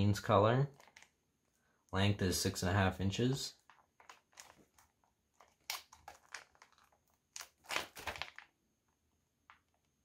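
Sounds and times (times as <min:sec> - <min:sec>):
plastic package crinkling: 0:00.7 - 0:01.2, 0:03.6 - 0:08.6.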